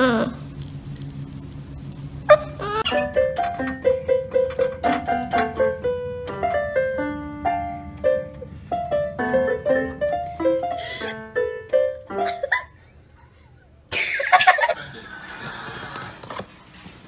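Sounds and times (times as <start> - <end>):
electronic keyboard piano notes: 2.8 - 12.6.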